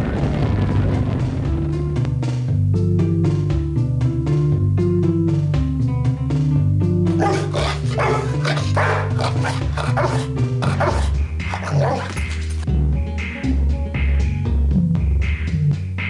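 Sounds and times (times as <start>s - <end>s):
dog barking: 7.2s - 12.4s.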